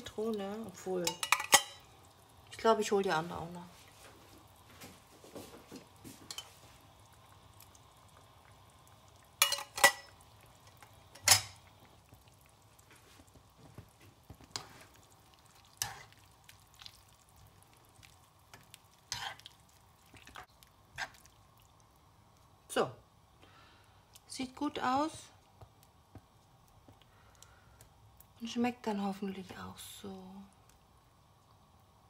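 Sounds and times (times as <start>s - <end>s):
curry simmering in a pan: 0.0s - 32.0s
kitchen utensils clinking: 1.0s - 1.8s, 9.4s - 10.1s, 11.2s - 11.6s.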